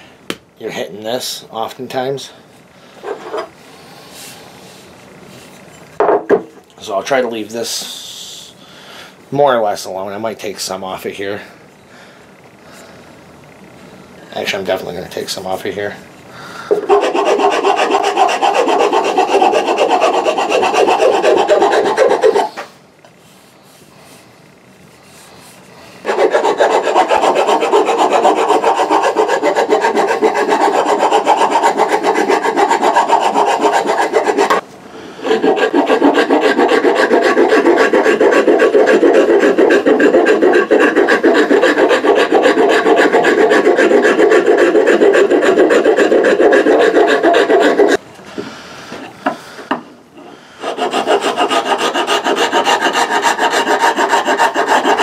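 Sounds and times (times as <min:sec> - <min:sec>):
file rasping on wood: 0:16.7 - 0:22.7, 0:26.0 - 0:34.6, 0:35.2 - 0:48.0, 0:50.6 - 0:55.0.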